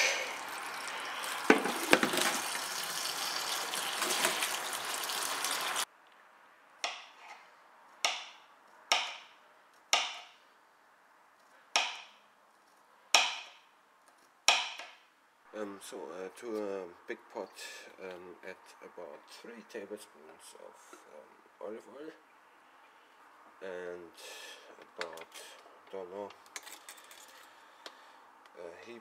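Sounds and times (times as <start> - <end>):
tap water running into pot: 0.3 - 5.8.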